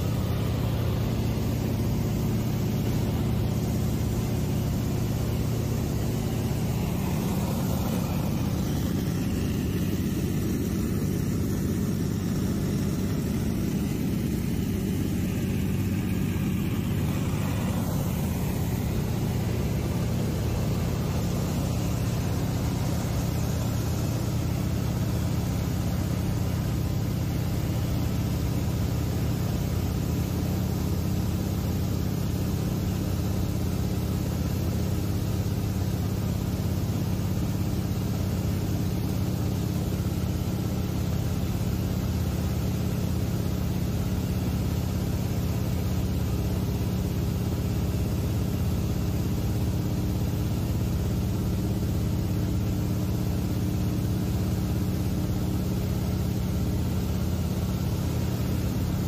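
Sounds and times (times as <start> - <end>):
rushing air: 0.0 - 24.4
propeller engine droning: 0.0 - 59.0.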